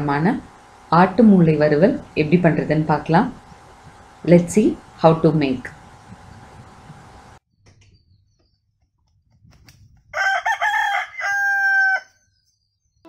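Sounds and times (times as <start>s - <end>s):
rooster crowing: 10.1s - 12.2s.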